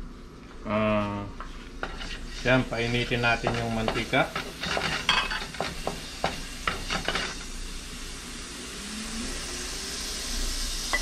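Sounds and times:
hot oil hissing in a wok: 0:01.8 - 0:11.0
wooden spatula tapping pan: 0:03.4 - 0:06.8.

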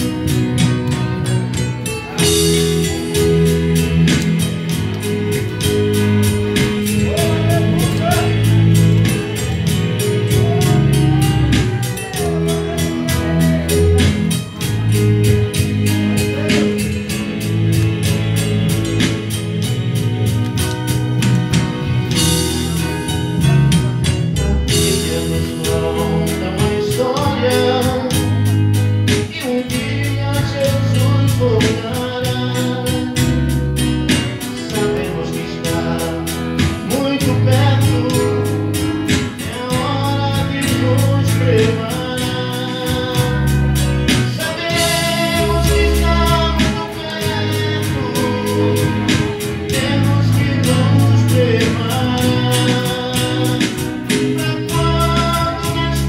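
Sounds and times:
acoustic guitar: 0:00.0 - 0:56.0
electronic keyboard: 0:00.0 - 0:56.0
man singing into a microphone: 0:07.0 - 0:17.2, 0:24.3 - 0:56.0.

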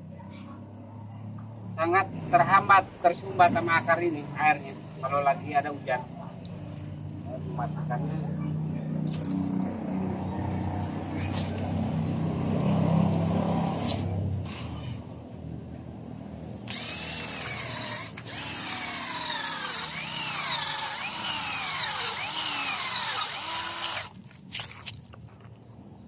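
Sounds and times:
cordless drill boring into wood: 0:16.7 - 0:24.2.

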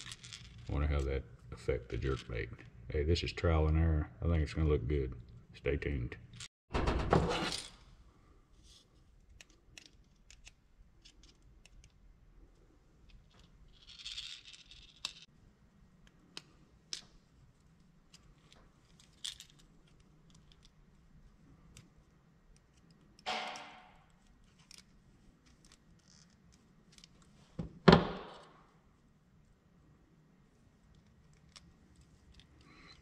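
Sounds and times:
pliers clicking and scraping metal: 0:09.2 - 0:12.0.

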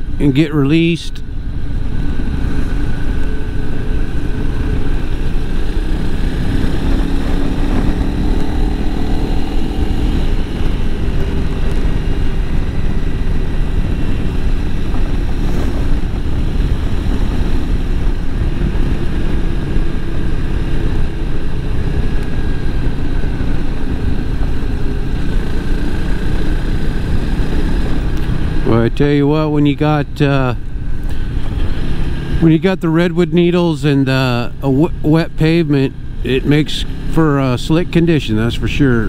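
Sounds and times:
motorcycle engine running: 0:00.0 - 0:39.0.

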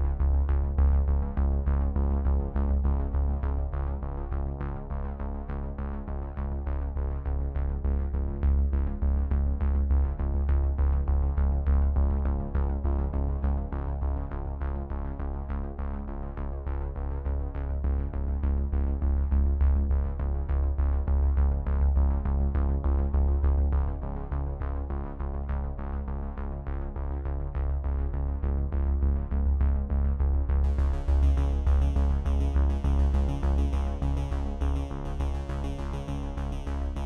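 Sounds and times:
electronic music with steady beat: 0:30.6 - 0:37.0.

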